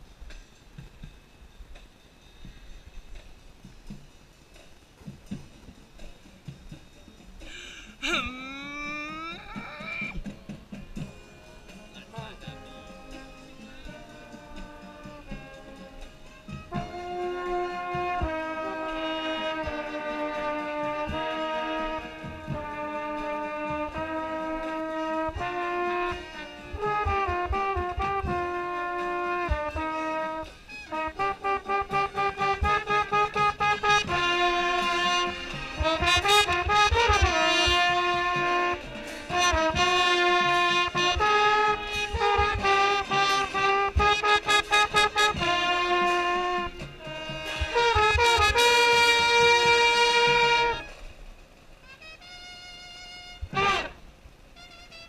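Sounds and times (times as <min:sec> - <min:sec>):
marching band brass: 0:00.0 - 0:55.0
mellophone playing: 0:08.0 - 0:10.3, 0:11.0 - 0:51.1.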